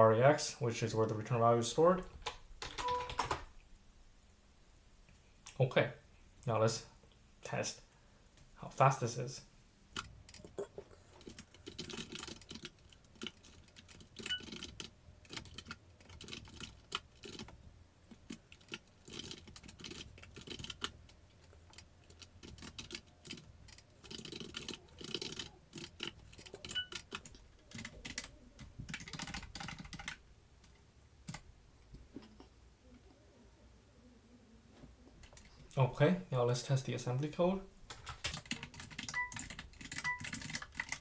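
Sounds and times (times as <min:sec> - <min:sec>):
computer keyboard typing: 0:02.6 - 0:03.5, 0:11.2 - 0:17.5, 0:18.2 - 0:30.2, 0:38.0 - 0:41.0.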